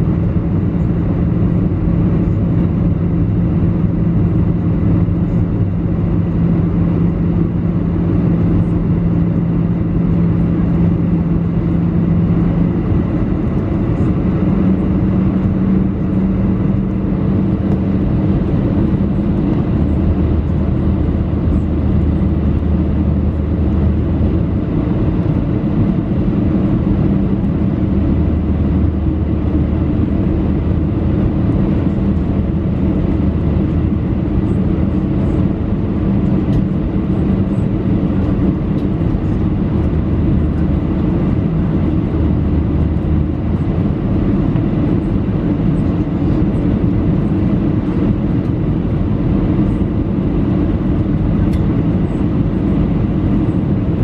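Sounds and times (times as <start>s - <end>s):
airliner cabin engine rush: 0.0s - 54.0s
deep drone: 0.0s - 54.0s
low hum: 0.0s - 54.0s.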